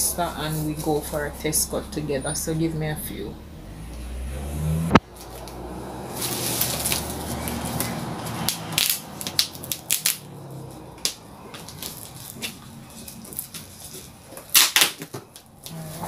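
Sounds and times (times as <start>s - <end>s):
sharp crackles of packaging: 5.1s - 10.4s, 11.0s - 16.0s
foam packaging bag rustling: 6.1s - 10.1s.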